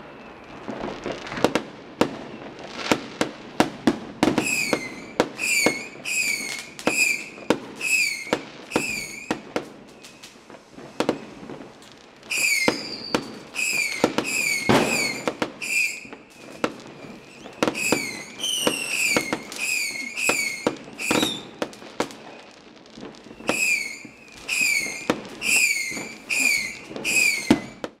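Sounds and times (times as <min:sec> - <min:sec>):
fireworks bangs and crackling pops: 0:00.0 - 0:28.0
fireworks whistles: 0:00.0 - 0:28.0.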